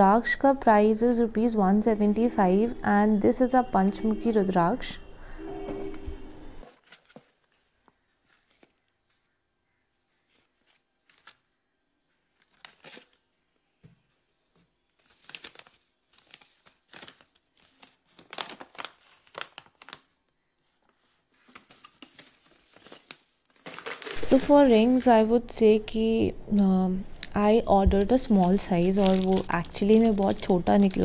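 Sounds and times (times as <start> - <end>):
paper and packing rustling: 5.9 - 8.9, 12.3 - 13.2, 14.7 - 25.1, 27.0 - 31.0
paper being unfolded crackling: 6.3 - 8.8, 10.2 - 11.4, 12.4 - 13.2, 15.0 - 25.0, 27.0 - 31.0.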